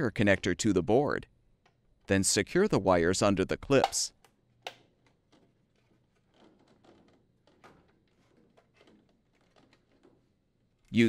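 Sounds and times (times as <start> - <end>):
rustling of wires: 4.2 - 11.0.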